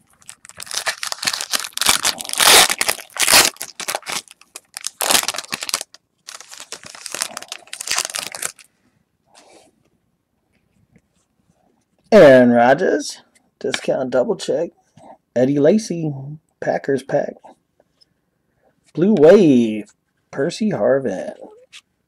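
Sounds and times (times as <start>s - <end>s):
foil wrapper tearing and crinkling: 0.1s - 8.7s.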